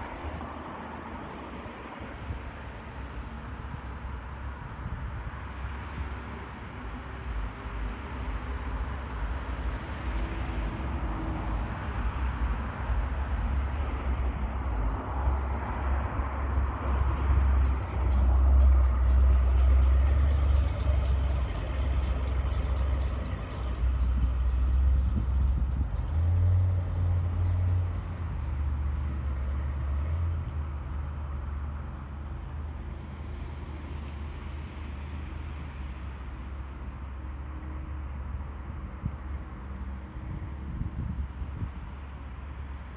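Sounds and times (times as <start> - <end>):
outdoor noise rushing: 0.0 - 42.9
wind buffeting microphone: 3.3 - 28.5, 38.8 - 42.2.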